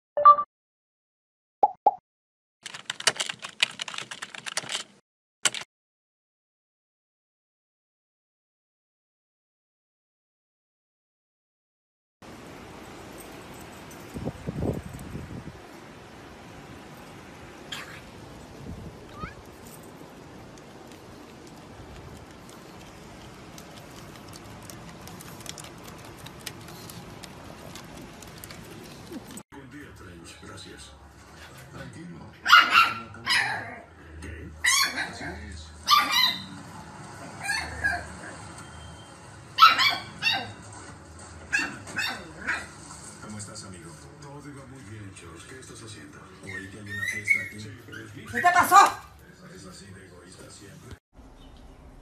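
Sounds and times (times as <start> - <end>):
keyboard typing clicks: 2.7 - 4.9.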